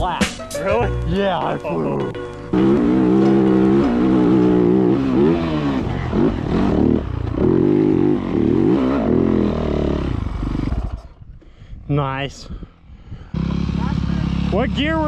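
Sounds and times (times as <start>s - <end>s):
dirt bike engine revving: 2.0s - 11.2s, 13.2s - 15.0s.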